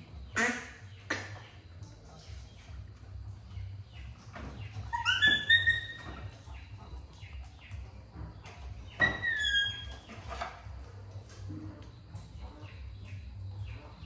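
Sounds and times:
baby monkey squealing: 4.8s - 6.3s, 9.0s - 10.2s.

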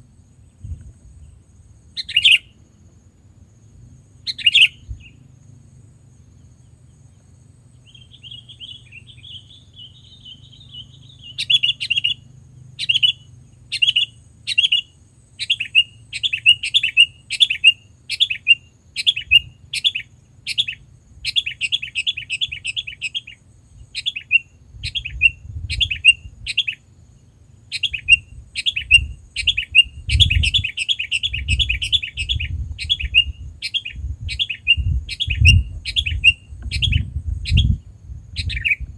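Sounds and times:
bulbul calling: 1.9s - 2.6s, 4.2s - 5.3s, 7.7s - 26.8s, 27.7s - 37.8s, 38.4s - 38.9s.

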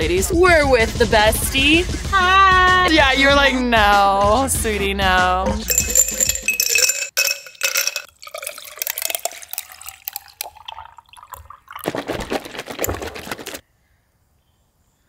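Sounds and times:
ice cubes clinking into glass jar: 5.7s - 13.5s
coffee pouring over ice: 5.7s - 13.6s
creamer pouring from carton: 11.8s - 13.6s.

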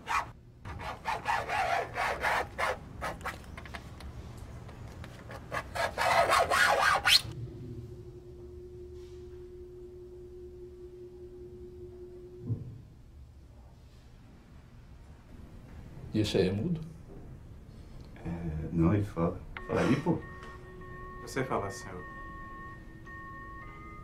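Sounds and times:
steady low tone: 7.3s - 15.4s, 17.0s - 24.0s.

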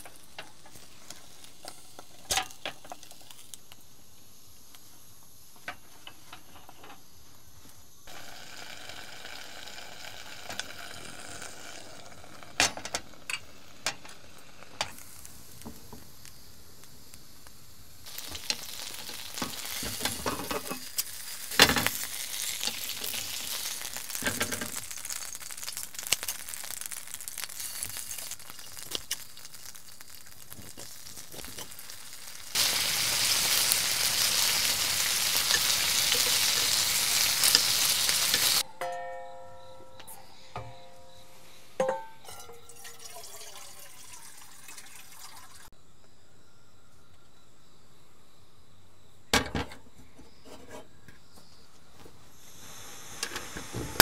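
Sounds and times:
meat sizzling in a pan: 0.0s - 3.8s, 8.1s - 38.6s, 52.4s - 54.0s.

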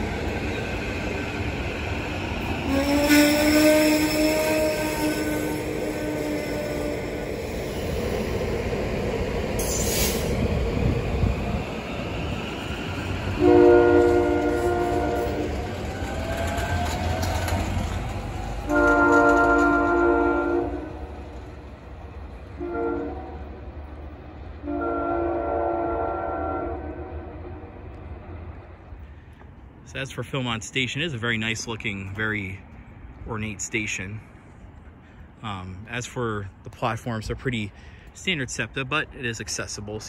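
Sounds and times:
electric train rolling past: 0.0s - 36.6s
train horn blasts: 2.7s - 7.3s, 13.3s - 15.7s, 18.6s - 21.2s, 22.6s - 23.6s, 24.6s - 27.9s.

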